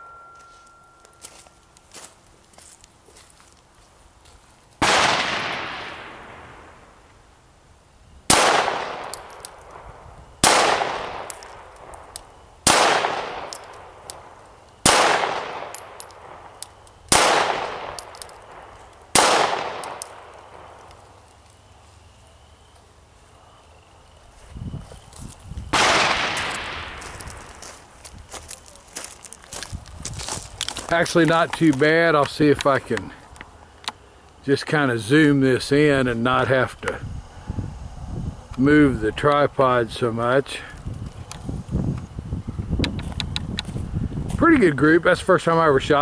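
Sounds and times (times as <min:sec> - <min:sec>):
pistol shots with echo: 0:04.8 - 0:06.6, 0:08.3 - 0:09.8, 0:10.4 - 0:20.8, 0:25.7 - 0:27.1.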